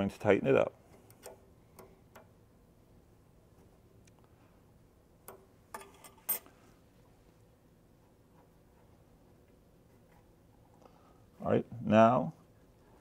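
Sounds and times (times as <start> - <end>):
faint metal clicks and taps: 0.9 - 2.3.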